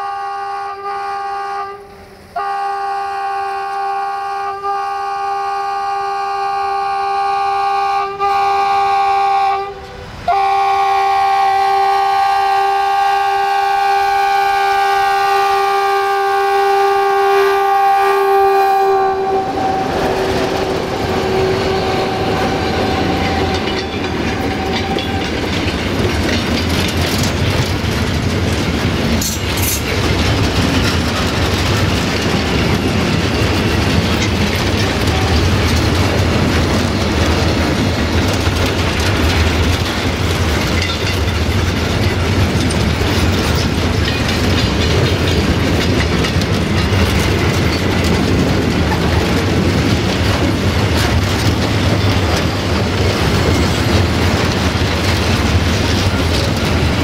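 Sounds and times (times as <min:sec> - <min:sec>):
locomotive horn blasts: 0:00.0 - 0:25.3, 0:34.8 - 0:35.7
freight wagons rolling by: 0:19.2 - 0:57.0.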